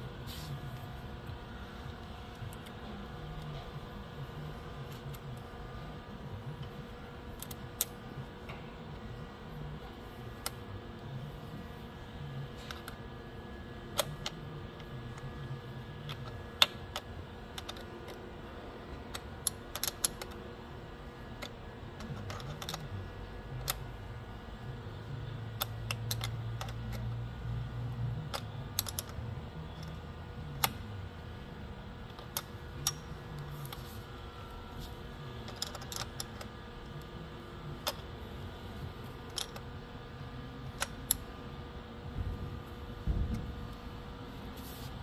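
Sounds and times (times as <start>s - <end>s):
parts clicking and tapping: 16.1s - 18.2s, 19.0s - 20.4s, 21.4s - 23.0s, 25.5s - 27.1s, 28.3s - 30.8s, 32.0s - 33.9s, 34.7s - 37.1s, 37.8s - 38.2s, 39.0s - 39.8s, 40.6s - 41.3s.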